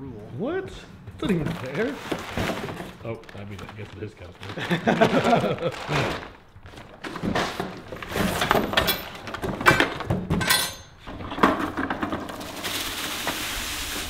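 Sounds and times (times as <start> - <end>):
packaging rustling: 1.2 - 9.6
lawn sweeper knocks and clinks: 7.0 - 12.5.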